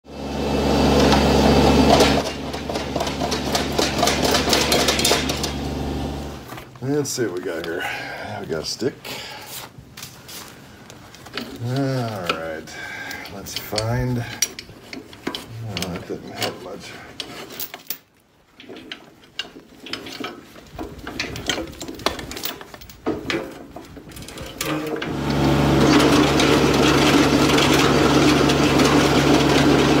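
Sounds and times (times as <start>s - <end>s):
tiller tines humming: 0.1s - 6.7s, 11.1s - 18.0s, 18.6s - 30.0s
tractor engine running: 0.1s - 7.0s, 24.9s - 30.0s
metallic clattering and banging: 1.8s - 5.6s, 17.2s - 25.2s
metal chain clinking: 13.1s - 24.8s.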